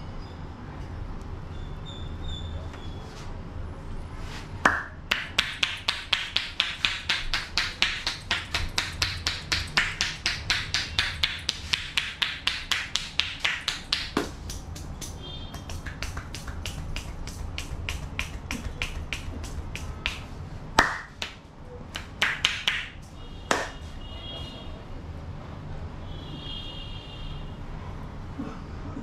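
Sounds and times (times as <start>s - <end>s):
palms clapping on head: 4.7s - 23.9s
light finger snaps on hair: 12.5s - 21.4s.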